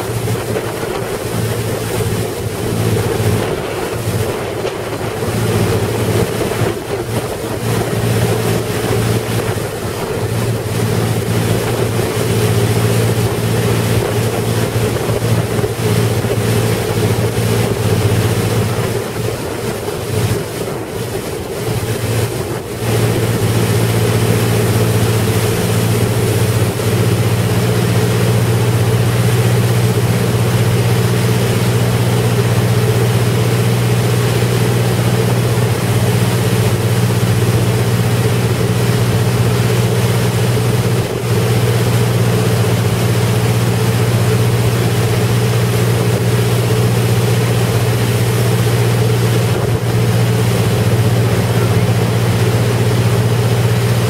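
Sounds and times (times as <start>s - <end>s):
wind buffeting microphone: 0.0s - 27.2s
powerboat engine drone: 0.0s - 54.0s
rushing water: 0.0s - 54.0s.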